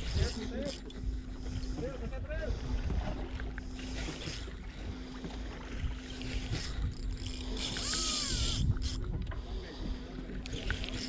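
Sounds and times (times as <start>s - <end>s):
boat motor humming: 0.0s - 11.0s
wind and water wash: 0.0s - 11.0s.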